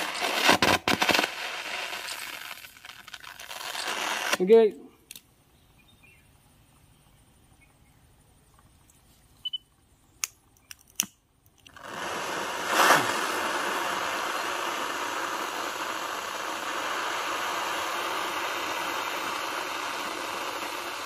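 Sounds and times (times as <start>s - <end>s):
hissing torch flame: 0.0s - 4.6s, 11.7s - 21.0s
sharp clicks: 10.2s - 11.8s.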